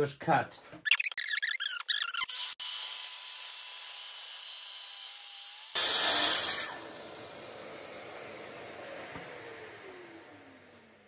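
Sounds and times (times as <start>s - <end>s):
circular saw cutting wood: 2.2s - 11.0s.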